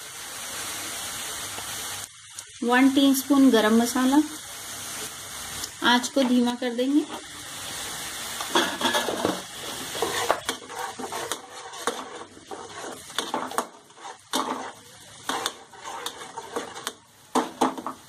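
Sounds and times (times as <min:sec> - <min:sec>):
onions sizzling in oil: 0:00.0 - 0:18.0
spatula scraping a pan: 0:08.5 - 0:18.0.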